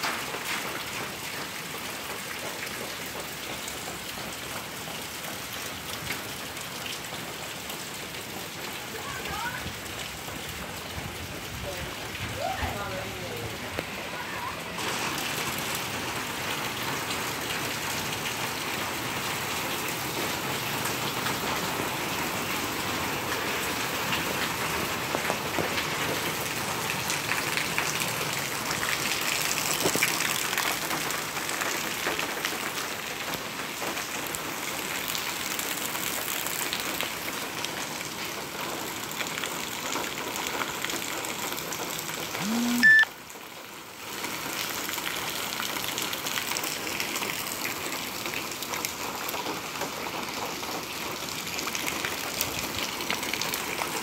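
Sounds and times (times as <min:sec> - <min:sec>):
rain on wet pavement: 0:00.0 - 0:54.0
short rising tone: 0:42.4 - 0:43.0.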